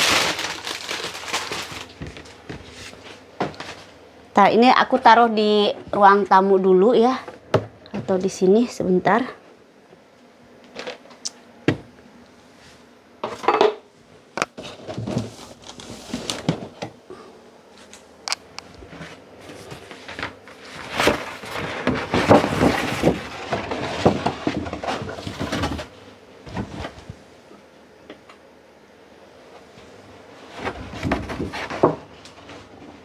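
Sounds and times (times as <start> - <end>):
cardboard rustling: 0.0 - 3.9, 14.6 - 16.8, 18.9 - 25.9.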